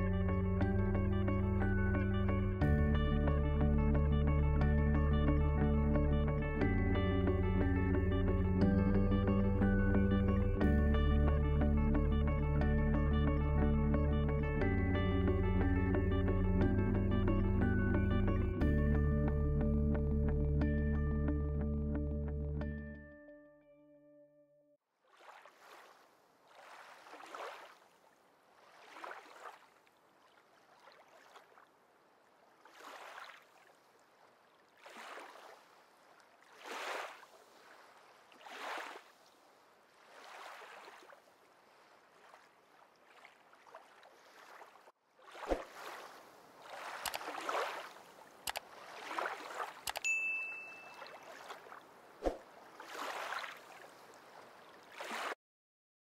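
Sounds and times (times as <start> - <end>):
water lapping: 25.0 - 50.0, 50.7 - 55.4
brief high ding: 50.0 - 51.3.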